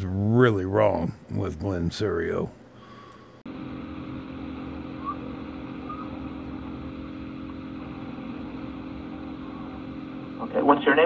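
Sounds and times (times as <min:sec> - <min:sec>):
telephone line hum: 0:02.7 - 0:11.0.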